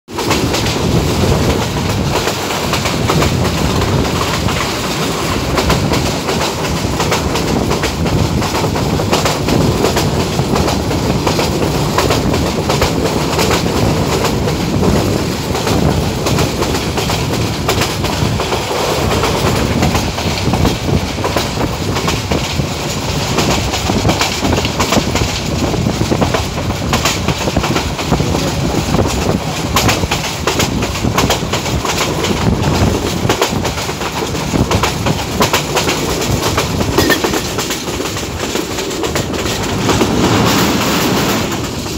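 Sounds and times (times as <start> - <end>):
train rolling rumble: 0.1 - 41.9
wheels clacking over rail joints: 0.1 - 41.9.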